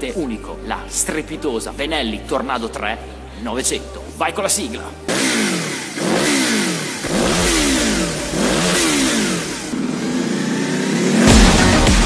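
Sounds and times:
motorcycle engine revving: 5.1s - 12.0s
music with heavy beat: 11.2s - 12.0s.

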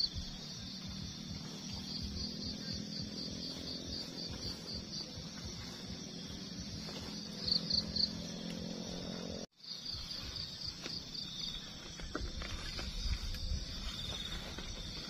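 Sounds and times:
insects chirping in pulses: 0.0s - 15.0s
camping gear clicks and rustles: 10.2s - 15.0s.

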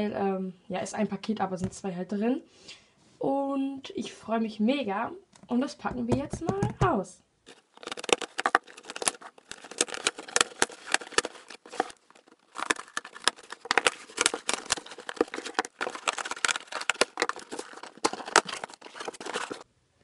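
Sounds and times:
scissors cutting packing tape: 12.6s - 19.6s.

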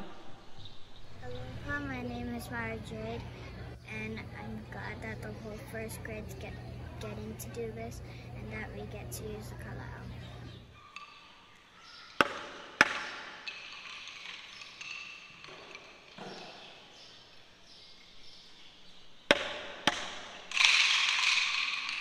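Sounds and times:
sharp knocks echoing in hall: 12.0s - 17.0s, 19.3s - 22.0s.

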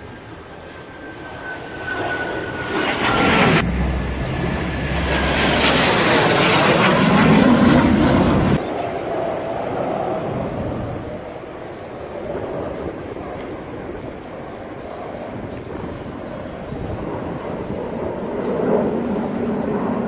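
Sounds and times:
jet engine roar: 0.0s - 20.0s
high whine falling in pitch: 0.8s - 8.6s.

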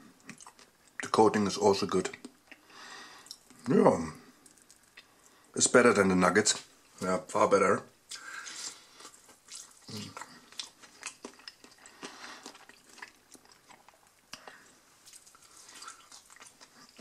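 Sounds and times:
person chewing crispy chicken: 0.2s - 1.0s, 8.1s - 17.0s.

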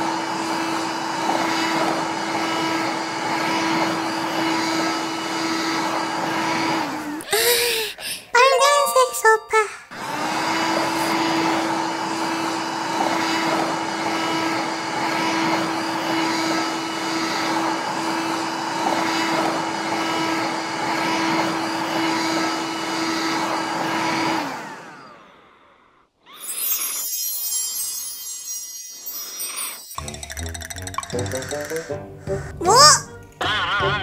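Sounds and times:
toy vacuum motor whirring: 0.0s - 7.8s, 9.9s - 32.0s
tinkling chime: 26.4s - 31.9s.

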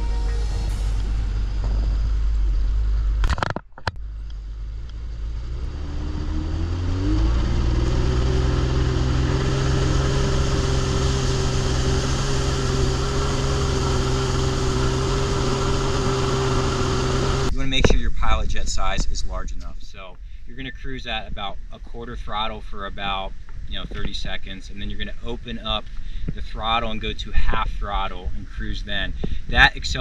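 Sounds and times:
jet ski engine accelerating: 4.0s - 18.4s.

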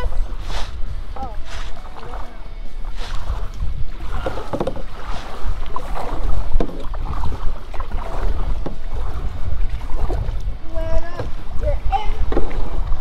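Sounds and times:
paddle knocking canoe: 0.0s - 13.0s
paddle splashing water: 0.0s - 13.0s
wind rumble on microphone: 0.0s - 13.0s.

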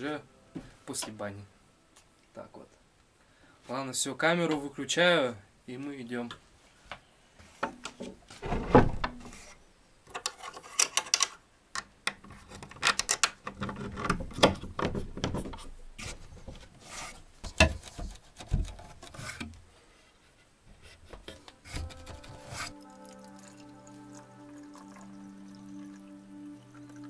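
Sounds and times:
rustling and clicking of objects handled: 9.1s - 22.8s.

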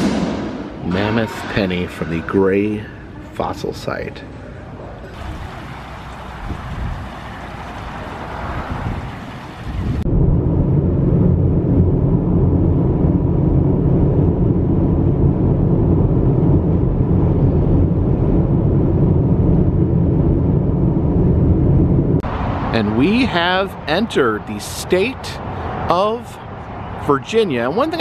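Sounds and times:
car road and engine noise: 1.6s - 28.0s
fountain water hissing: 5.1s - 10.0s.

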